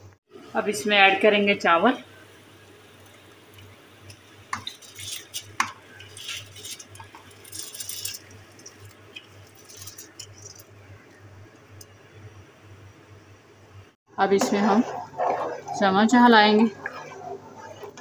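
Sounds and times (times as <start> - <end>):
rice pouring into water: 4.7 - 10.7.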